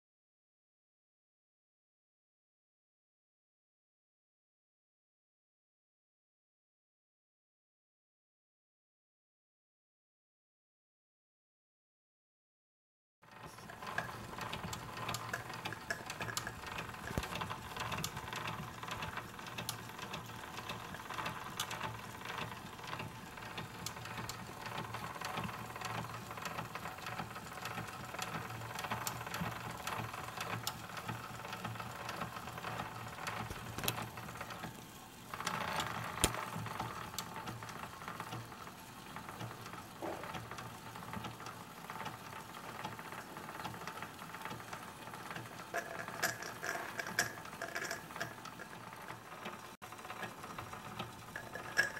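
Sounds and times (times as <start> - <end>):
model engine gears clattering: 13.3 - 51.9.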